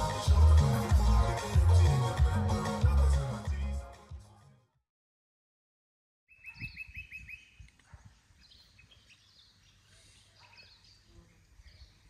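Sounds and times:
birds chirping: 6.3 - 12.0.

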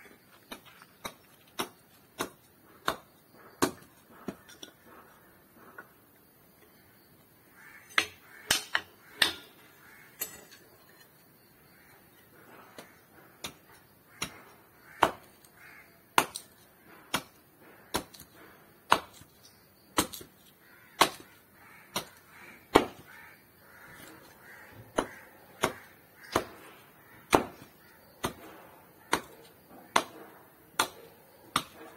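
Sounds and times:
hatchet chopping wood: 0.5 - 4.6, 7.9 - 9.6, 12.8 - 15.5, 16.2 - 20.4, 21.0 - 23.1, 23.9 - 31.9.

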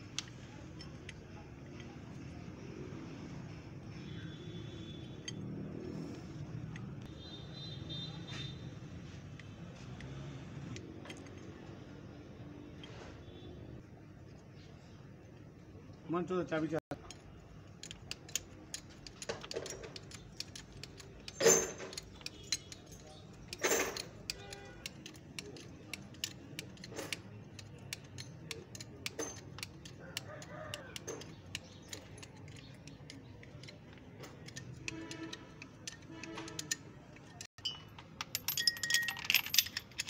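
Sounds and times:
steel chain clinking and rattling: 17.0 - 30.1, 31.0 - 40.0.

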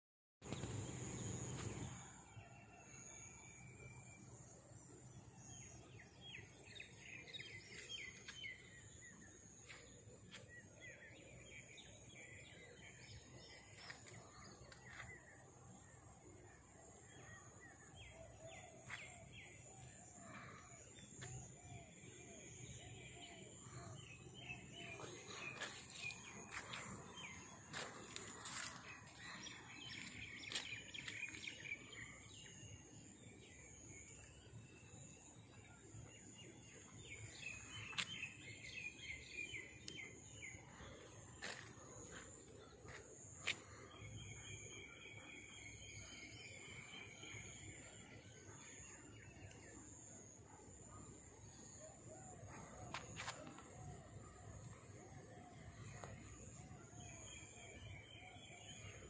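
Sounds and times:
birds chirping: 5.0 - 50.0.

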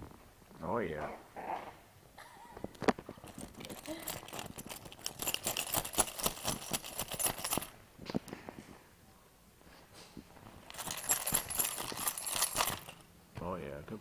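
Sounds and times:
collar tag jingling: 3.0 - 7.8, 10.6 - 13.1.

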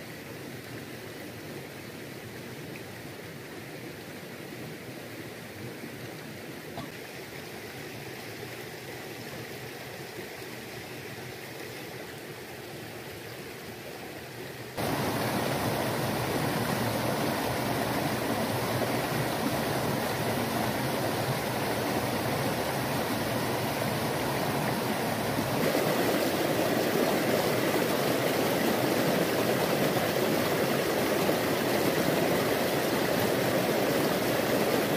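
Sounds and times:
stream splashing over boulders: 5.4 - 34.9.

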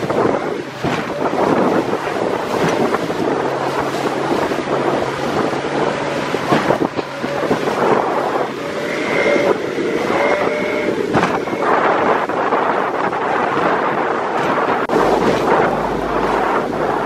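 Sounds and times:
outboard motor hum: 0.0 - 17.0
water splashing against boat hull: 0.0 - 17.0
wind buffeting microphone: 0.0 - 17.0
steady higher tones: 14.9 - 17.0.

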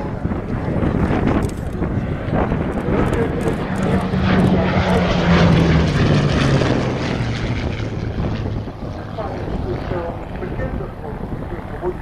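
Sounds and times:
propeller aircraft engine flypast: 0.0 - 12.0.

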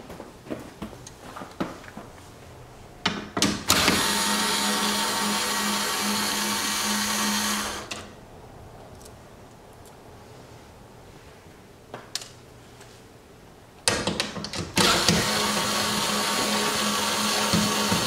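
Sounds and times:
electric screwdriver running: 3.7 - 7.9, 14.8 - 18.0.

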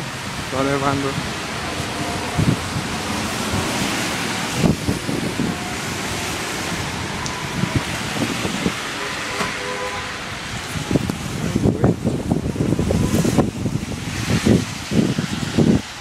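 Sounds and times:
falling snow and sleet: 0.0 - 16.0
traffic: 0.0 - 16.0
wind: 0.0 - 16.0
wind thumps on microphone: 2.2 - 5.7, 10.5 - 16.0.

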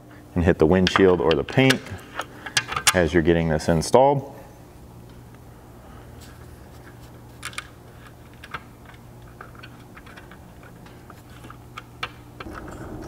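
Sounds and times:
steady low hum: 0.0 - 13.0
bolts clicking into mounts: 0.8 - 3.2, 7.4 - 13.0.

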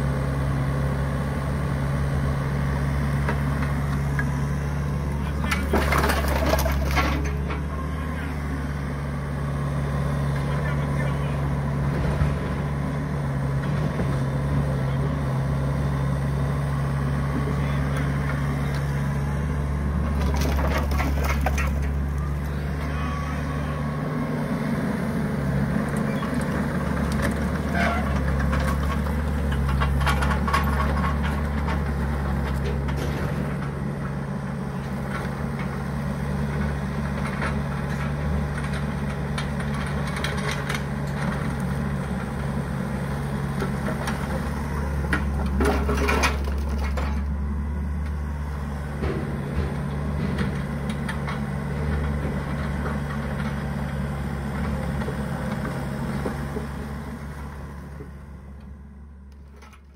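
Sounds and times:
excavator diesel engine running: 0.0 - 59.9
logs clattering: 5.3 - 7.7.

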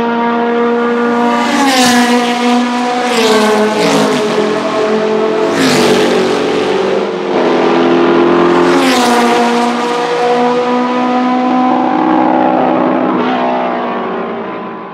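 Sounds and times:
distant high-revving engines: 0.0 - 14.9
racing cars passing: 0.0 - 14.9.

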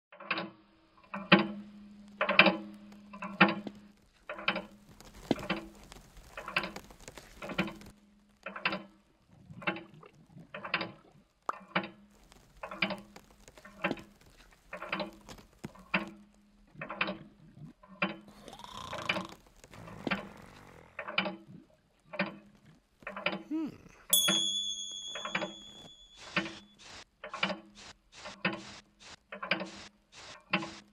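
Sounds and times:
ringing clicks: 24.2 - 26.8.

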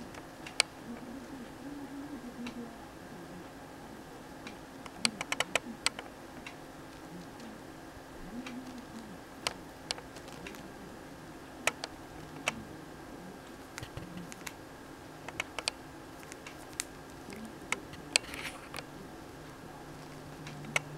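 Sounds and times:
bird beak clicking and snipping: 15.2 - 18.9.

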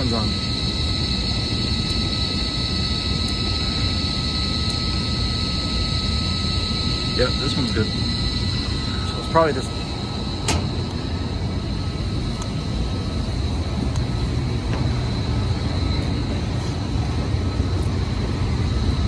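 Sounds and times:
gas boiler machinery drone: 0.0 - 19.0
high-pitched whine: 0.0 - 19.0.

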